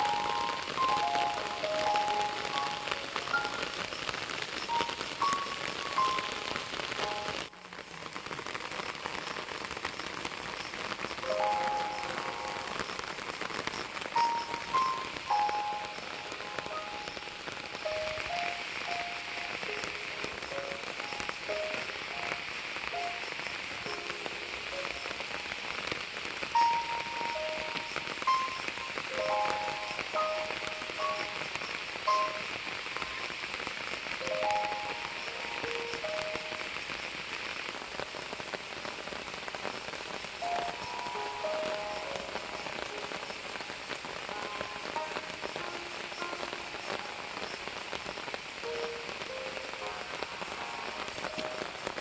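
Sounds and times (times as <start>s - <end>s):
light background melody: 0.0s - 3.9s, 11.3s - 12.8s, 14.2s - 25.2s, 26.6s - 33.2s, 34.2s - 36.5s
quiet crackling hiss: 0.0s - 52.0s
rain patter: 0.0s - 52.0s.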